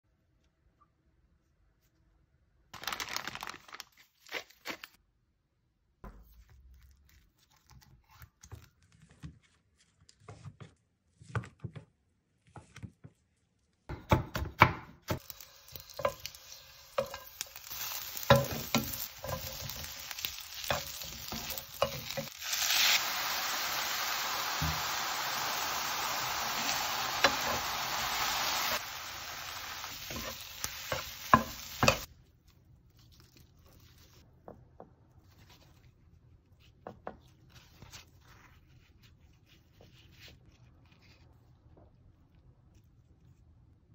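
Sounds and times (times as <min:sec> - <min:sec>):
food sizzling in a pan: 0:15.1 - 0:32.1
wooden spatulas scraping a pan: 0:15.7 - 0:23.0, 0:29.8 - 0:32.1.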